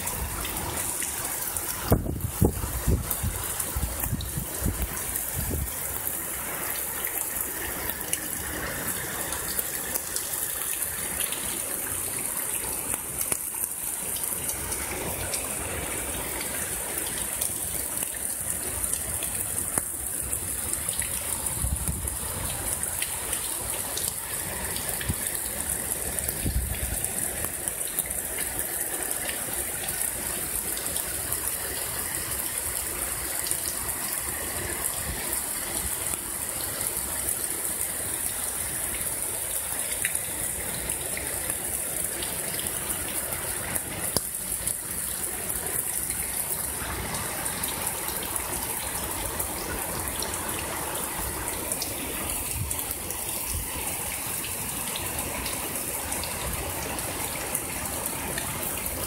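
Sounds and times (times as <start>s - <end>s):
heavy rain hissing: 0.0s - 59.0s.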